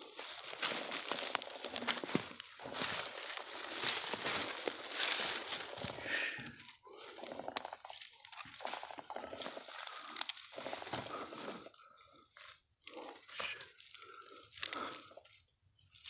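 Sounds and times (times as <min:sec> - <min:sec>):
dry leaves crunching underfoot: 0:00.0 - 0:11.6.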